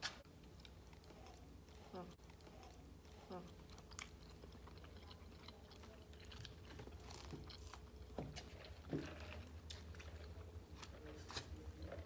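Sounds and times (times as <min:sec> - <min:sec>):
low steady hum: 0:00.0 - 0:12.0
chewing clicks: 0:00.4 - 0:08.0.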